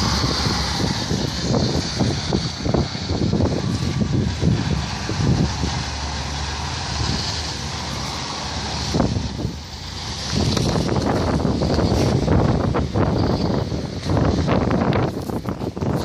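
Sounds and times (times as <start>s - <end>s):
car running on ice: 0.0s - 16.0s
wind buffeting microphone: 0.0s - 16.0s.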